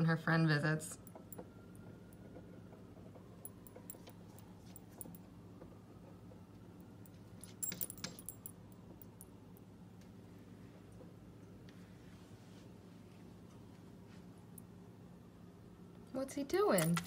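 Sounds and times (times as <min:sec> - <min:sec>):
low steady hum: 0:00.0 - 0:17.0
collar tag jingling: 0:07.4 - 0:08.5.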